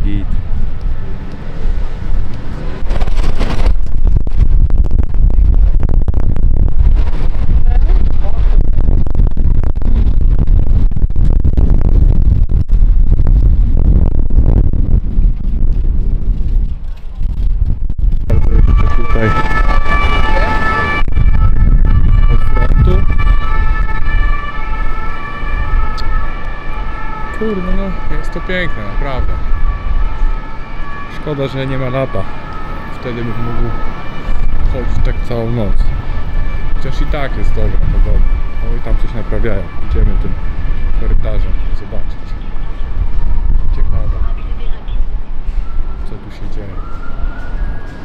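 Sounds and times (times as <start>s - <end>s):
emergency siren: 0.0s - 3.6s, 18.3s - 48.0s
wind buffeting microphone: 0.0s - 48.0s.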